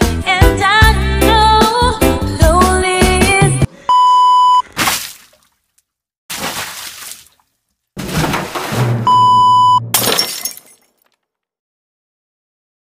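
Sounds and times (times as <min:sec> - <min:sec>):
sharp crash-like burst: 0:08.0 - 0:09.2
electronic beep: 0:09.1 - 0:09.9.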